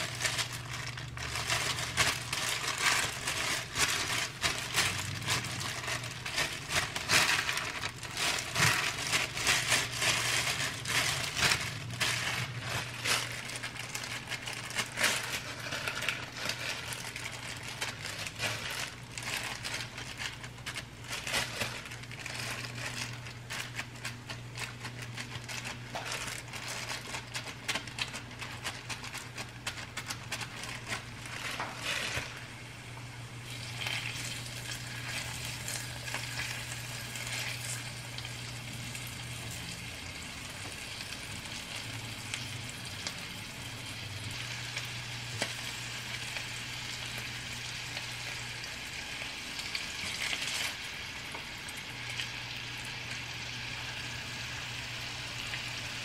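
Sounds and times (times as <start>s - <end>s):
plastic gloves and paper crinkling: 0.0s - 56.0s
meatballs sizzling in oil: 32.6s - 56.0s.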